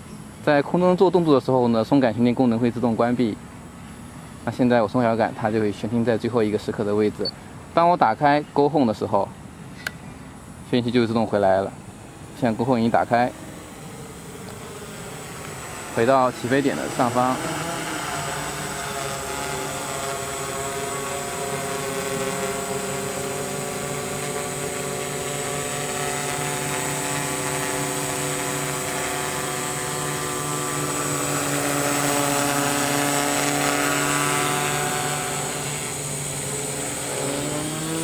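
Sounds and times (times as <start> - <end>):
quadcopter propellers buzzing: 9.0 - 38.0.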